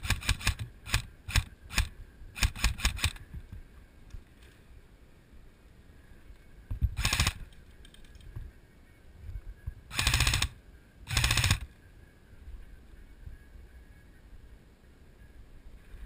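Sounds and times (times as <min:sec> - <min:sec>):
airsoft rifle full-auto bursts: 0:00.0 - 0:03.2, 0:07.0 - 0:07.4, 0:09.9 - 0:11.7.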